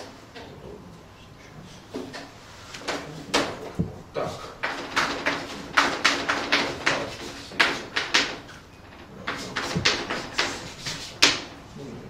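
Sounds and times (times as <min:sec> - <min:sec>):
chalk tapping on blackboard: 0:04.6 - 0:08.6, 0:09.2 - 0:11.6.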